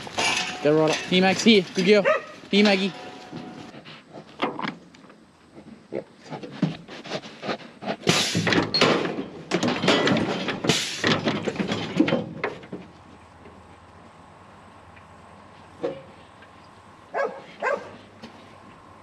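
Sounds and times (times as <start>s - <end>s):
sheep moving through metal race: 0.0s - 3.7s, 8.0s - 13.0s
steel panels clanking and rattling: 0.0s - 3.7s, 8.1s - 12.9s.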